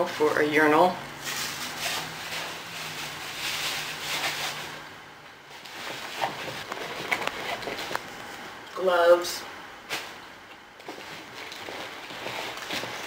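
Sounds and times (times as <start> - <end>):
plastic bag crinkling: 10.8 - 13.0.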